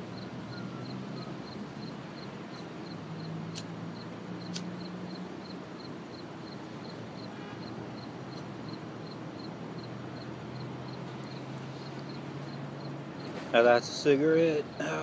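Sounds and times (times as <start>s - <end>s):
sharp clicks: 3.5s - 3.7s.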